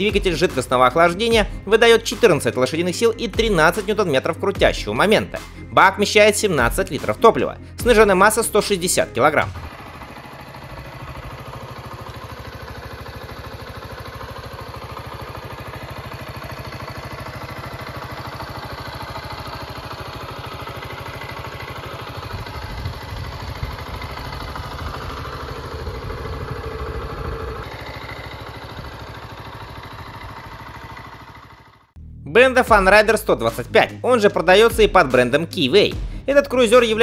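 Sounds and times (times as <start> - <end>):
motorcycle engine idling: 0.0 - 37.0.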